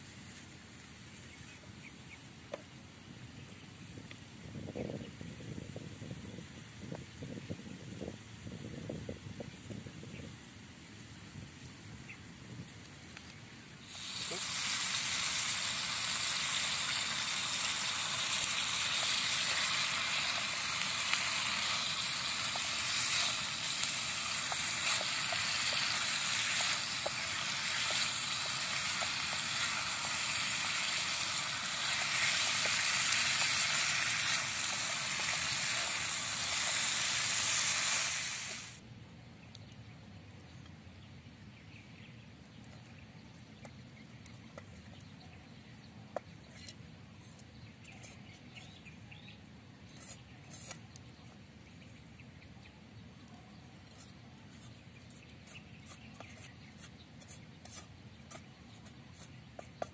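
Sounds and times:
food sizzling and popping in a wok: 13.9s - 38.8s.

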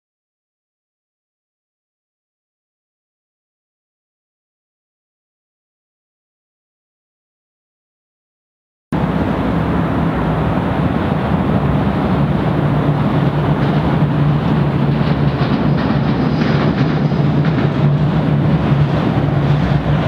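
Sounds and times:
heavy road traffic: 9.0s - 20.0s
low engine drone: 9.0s - 20.0s.

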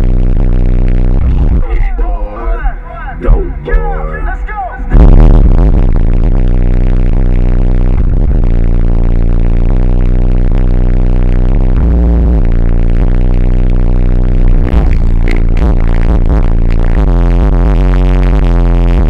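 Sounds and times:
bass-heavy electronic music: 0.0s - 19.0s.

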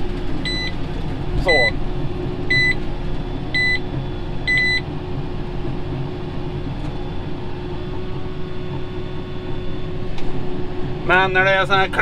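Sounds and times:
tractor diesel engine running: 0.0s - 12.0s
monitor beeps: 0.4s - 0.8s, 1.5s - 1.8s, 2.5s - 4.9s.

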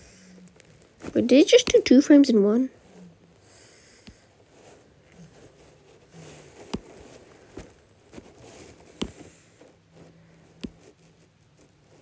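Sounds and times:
faint scratchy rubbing: 4.4s - 12.0s.

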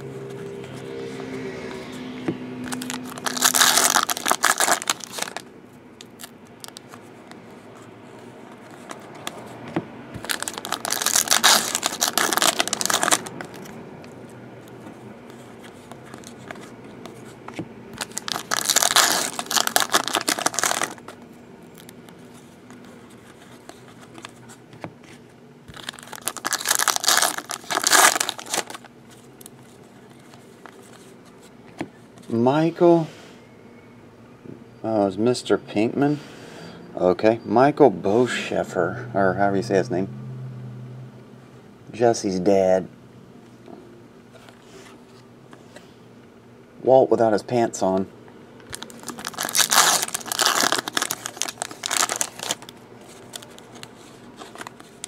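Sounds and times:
foil wrappers crinkling and tearing: 2.7s - 7.0s, 10.2s - 13.7s, 18.0s - 22.2s, 25.7s - 31.0s, 48.7s - 55.0s.

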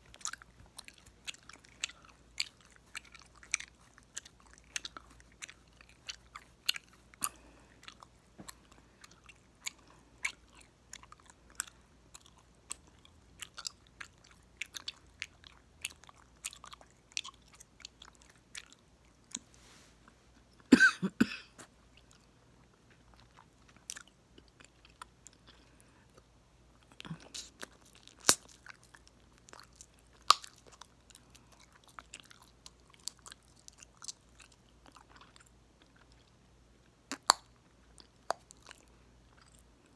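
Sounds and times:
chewing gum: 0.0s - 20.7s, 21.6s - 39.9s
gum snapping and popping: 27.4s - 28.8s, 29.6s - 30.8s, 37.1s - 38.7s.

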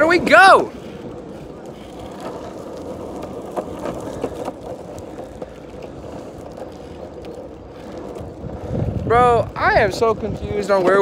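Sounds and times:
skateboard wheels rolling on asphalt: 0.0s - 11.0s.

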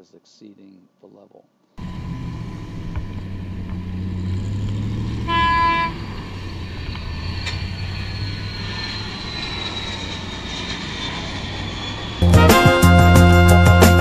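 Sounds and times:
low engine hum: 1.8s - 12.3s
faint jet engine whine: 1.8s - 12.9s
short horn toot: 5.2s - 6.1s.

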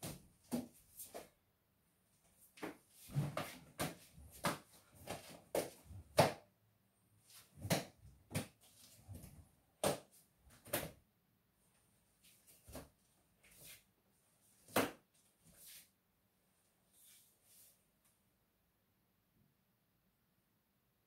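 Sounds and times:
nunchaku swishes and knocks: 2.6s - 6.5s.

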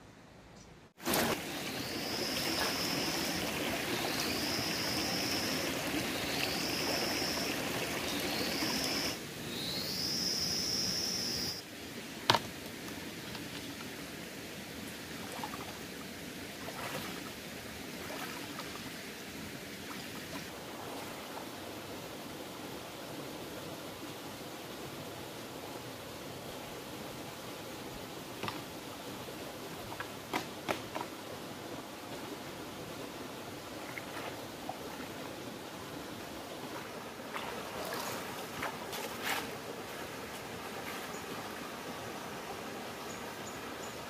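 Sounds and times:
stream running over rocks: 1.0s - 44.0s.

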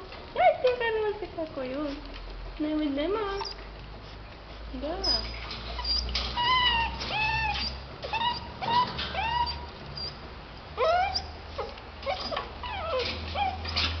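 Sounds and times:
puppies whimpering and yipping: 5.0s - 10.2s, 10.8s - 14.0s.

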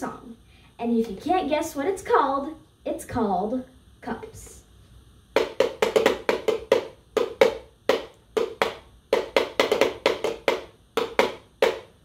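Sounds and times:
plastic cups tapped rhythmically: 5.3s - 12.0s.

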